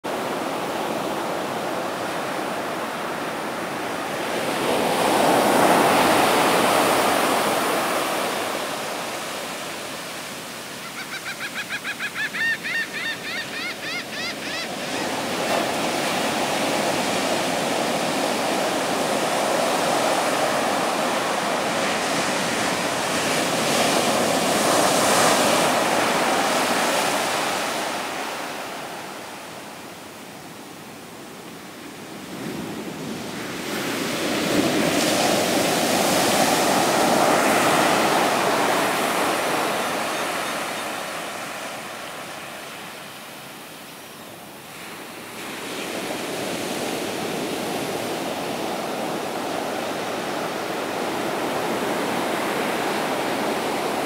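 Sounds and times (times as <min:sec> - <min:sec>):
ocean surf breaking on beach: 0:00.1 - 0:54.0.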